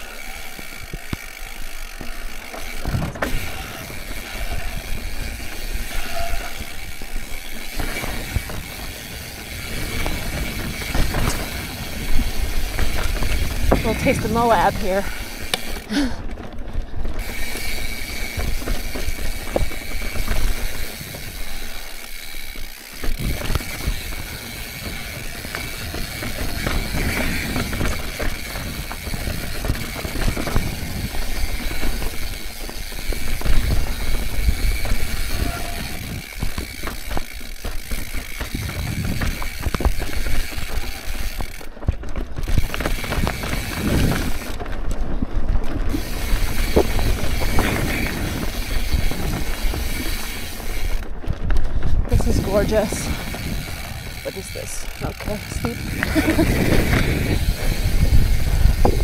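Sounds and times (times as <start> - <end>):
bike chain and frame rattling: 0.0 - 59.0
bike hub ticking: 0.0 - 59.0
bike tyres rolling over rock: 0.0 - 59.0
wind rumble on microphone: 23.0 - 59.0.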